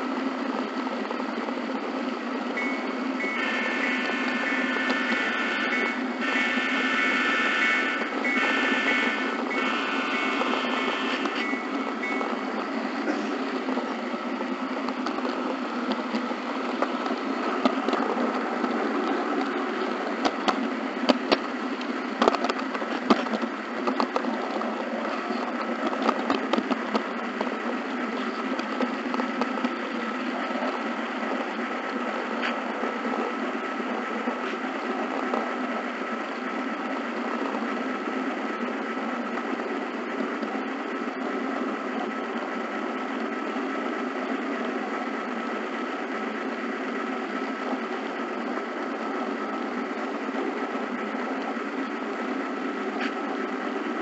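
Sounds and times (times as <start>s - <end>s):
model train motor whirring: 2.6s - 21.1s
wheels clicking over rail joints: 8.0s - 54.0s.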